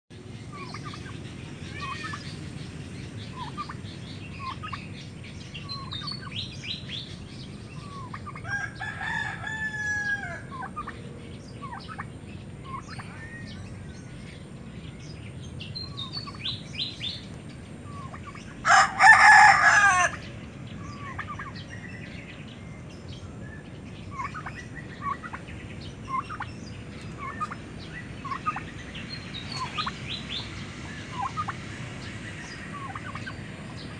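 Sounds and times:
bird chirps and clucks: 0:00.3 - 0:33.9
rooster crowing: 0:08.4 - 0:10.5, 0:18.6 - 0:20.3
drawn-out crow-like call: 0:08.4 - 0:10.6, 0:18.6 - 0:20.3.

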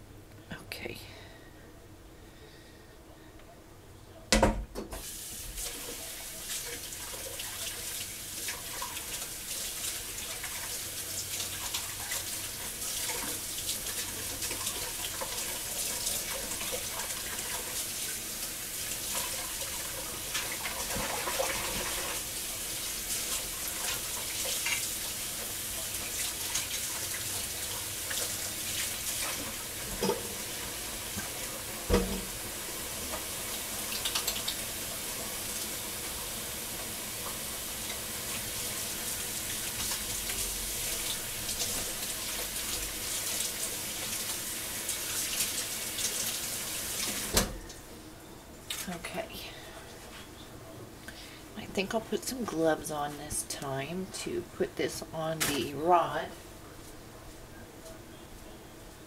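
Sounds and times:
knocks against sink: 0:04.3 - 0:05.0, 0:31.9 - 0:32.3
tap water running into sink: 0:04.4 - 0:47.6.

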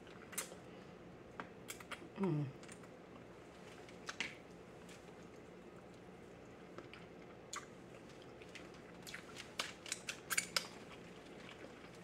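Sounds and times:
chewing: 0:01.6 - 0:12.0.

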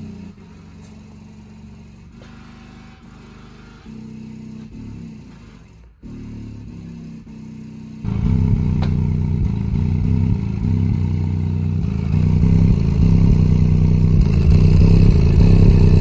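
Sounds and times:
subwoofer playing bass-heavy music: 0:04.6 - 0:16.0.

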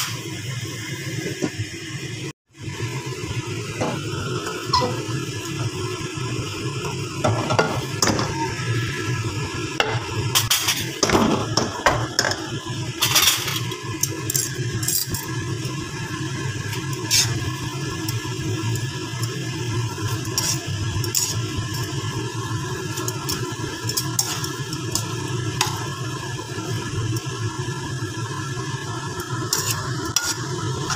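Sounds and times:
light sizzle: 0:00.0 - 0:30.9
spatula scraping and knocking wok: 0:03.7 - 0:05.6, 0:07.2 - 0:08.6, 0:09.7 - 0:15.4, 0:16.7 - 0:17.5, 0:20.0 - 0:21.8, 0:23.0 - 0:26.0, 0:29.3 - 0:30.9.

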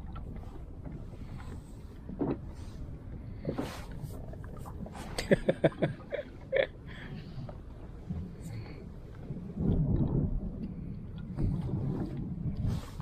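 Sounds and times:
water noise: 0:00.0 - 0:13.0
wind: 0:00.0 - 0:13.0.

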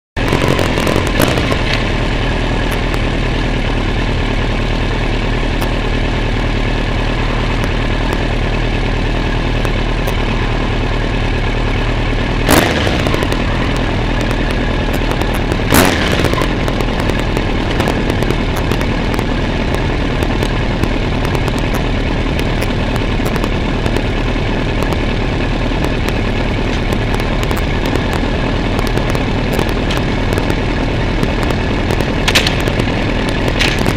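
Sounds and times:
motorcycle engine running: 0:00.2 - 0:33.9.

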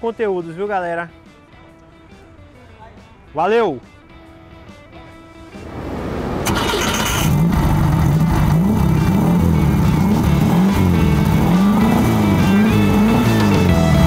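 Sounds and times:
car engine starting and revving: 0:05.5 - 0:14.0.

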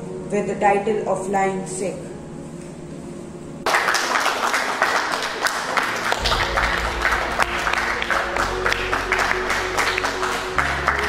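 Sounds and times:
crowd applauding: 0:03.6 - 0:11.0
music with low bass: 0:06.2 - 0:11.0.

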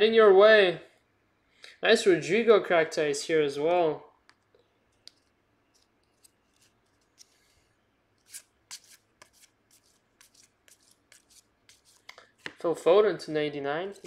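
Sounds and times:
cards flicking and sliding: 0:08.2 - 0:12.6.

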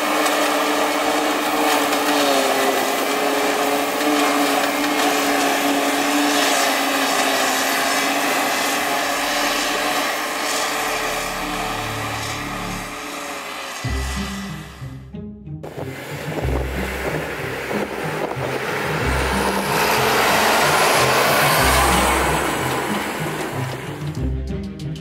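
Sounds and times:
forage harvester whining drone: 0:00.0 - 0:25.0.

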